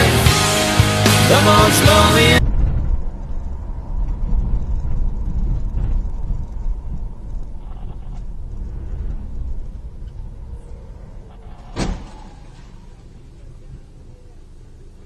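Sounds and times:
car engine rumble: 0.0 - 15.0
road noise: 0.0 - 15.0.

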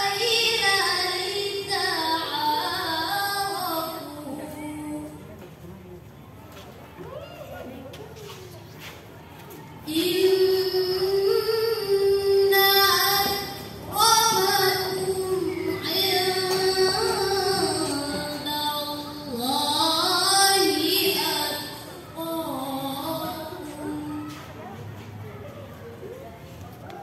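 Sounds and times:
girl chanting melodic recitation: 0.0 - 5.3, 9.8 - 24.8.

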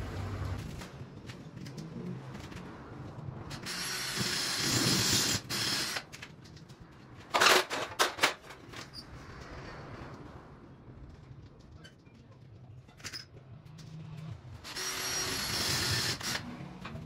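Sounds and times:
cordless drill running: 3.6 - 6.0, 14.7 - 16.5.

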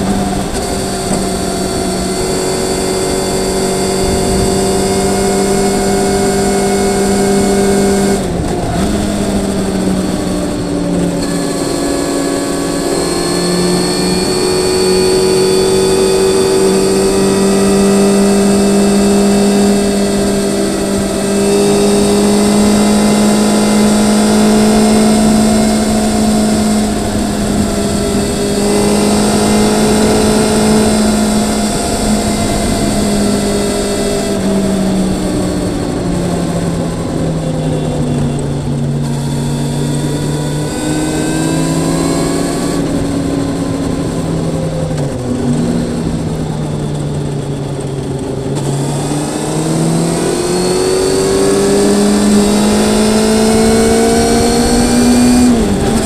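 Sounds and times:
motorcycle engine running: 0.0 - 56.0
road and wind noise: 0.0 - 56.0.

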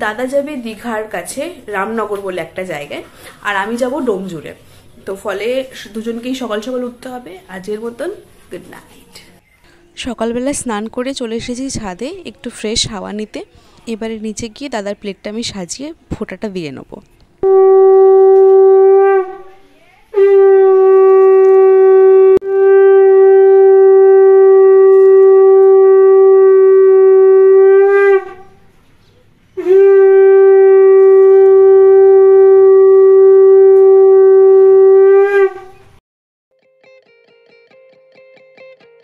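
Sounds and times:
conch shell blasts: 17.4 - 19.6, 20.2 - 28.7, 29.6 - 35.8.

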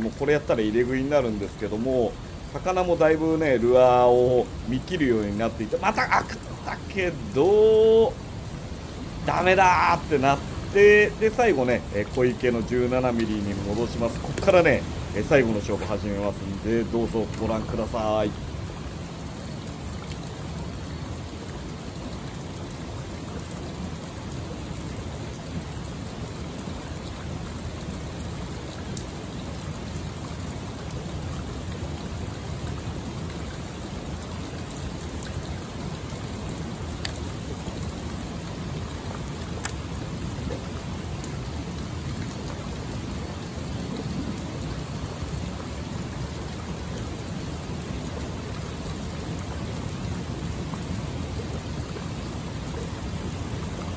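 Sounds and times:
water spilling over rock ledge: 0.0 - 53.9
faint clicks: 37.0 - 37.3, 39.5 - 39.8.

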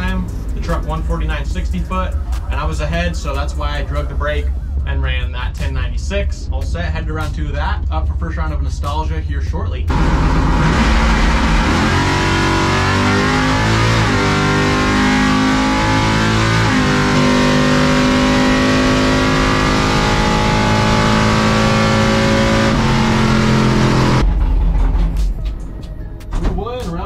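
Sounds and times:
truck engine at full throttle: 9.8 - 25.6.

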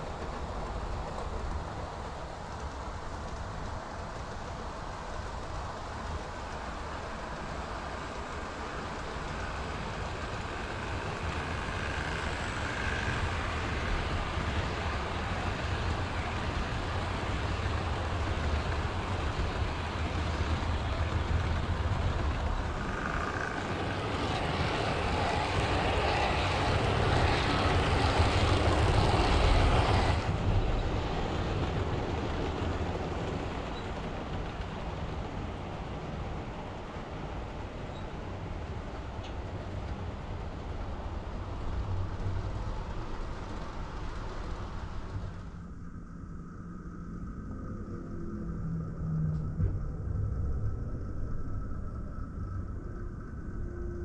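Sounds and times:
wheels rumbling on track: 0.0 - 45.9
model train motor hum: 8.2 - 30.6.

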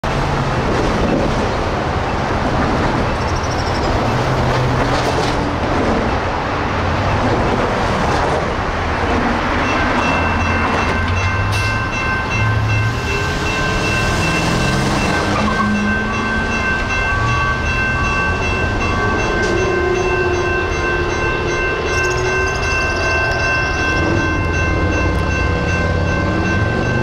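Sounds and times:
road traffic passing: 0.0 - 27.0
crossing warning bell ringing: 9.0 - 27.0.

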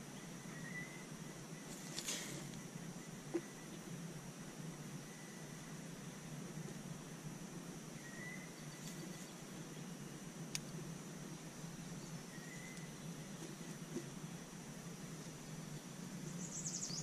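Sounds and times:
high-pitched insect drone: 0.0 - 10.1
soft hiss: 0.0 - 17.0.

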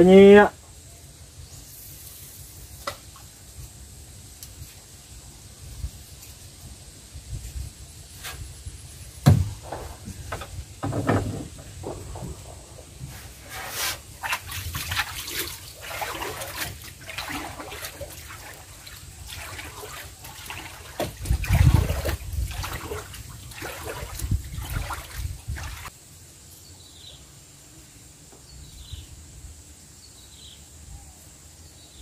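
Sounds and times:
low thump: 9.2 - 13.2
splashes and knocks: 9.2 - 25.9
water lapping against boat hull: 9.3 - 25.9.

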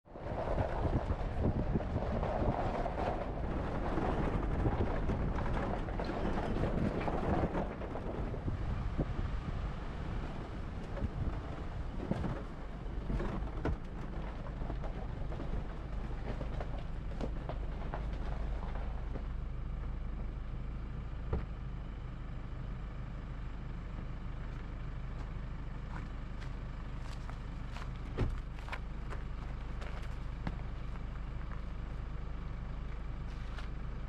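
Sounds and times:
car engine rumble: 0.0 - 34.0
knocks and crackles: 0.2 - 9.0, 10.6 - 19.4.

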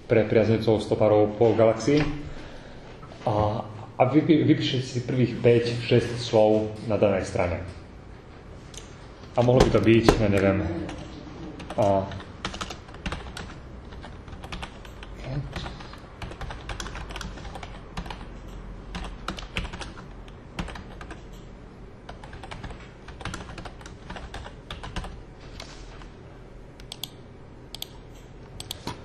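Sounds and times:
keyboard typing clicks: 10.9 - 21.5, 26.8 - 29.0.

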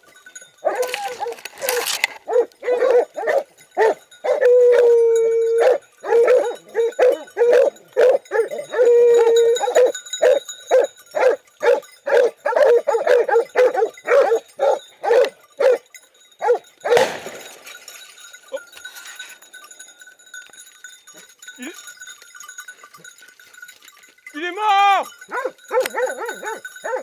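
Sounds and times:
dog howling: 0.6 - 10.4, 11.2 - 15.8, 25.3 - 27.0
hunting dogs barking: 0.6 - 17.5, 25.2 - 27.0.

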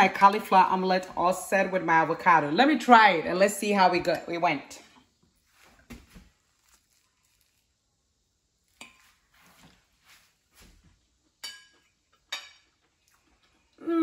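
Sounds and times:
fork clinking on china plate: 11.4 - 12.7.

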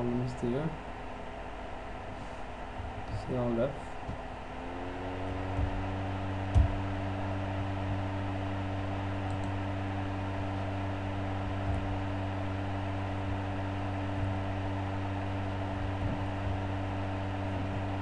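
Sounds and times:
small motor humming: 3.8 - 18.0.

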